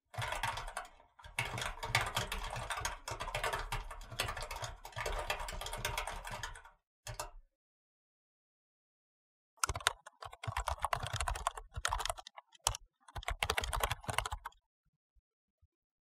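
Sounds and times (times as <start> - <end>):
mechanical keyboard typing: 0.1 - 7.3, 9.6 - 14.6.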